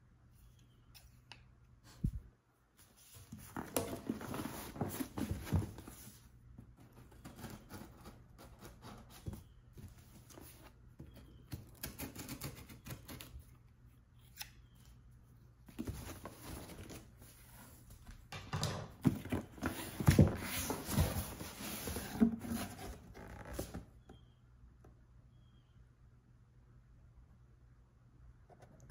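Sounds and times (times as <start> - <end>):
scissors snipping cardboard: 11.5 - 13.3
cardboard box scrapes and rustles: 19.4 - 23.8.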